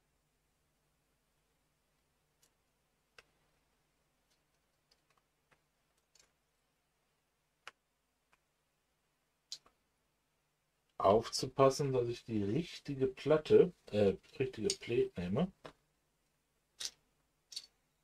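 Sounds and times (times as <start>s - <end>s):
plastic toy bricks clicking: 16.8s - 17.8s.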